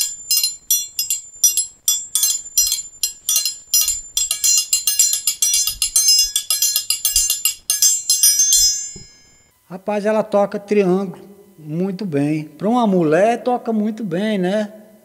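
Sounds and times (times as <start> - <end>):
metal triangle rhythm: 0.0 - 9.5.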